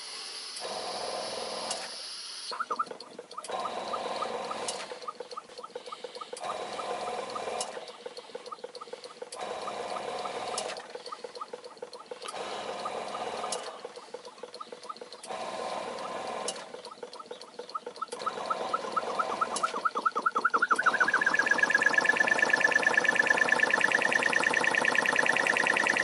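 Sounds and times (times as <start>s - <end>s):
steam hiss: 0.0s - 2.5s.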